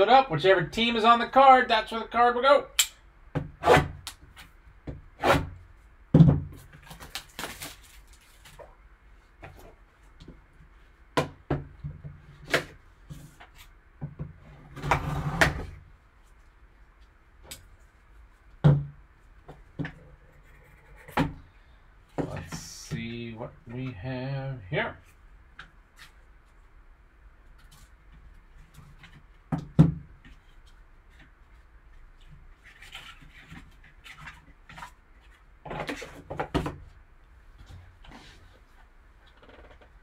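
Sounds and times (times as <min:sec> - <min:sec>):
plastic rustling: 0:06.6 - 0:08.8
shrink wrap crackling: 0:06.8 - 0:08.6.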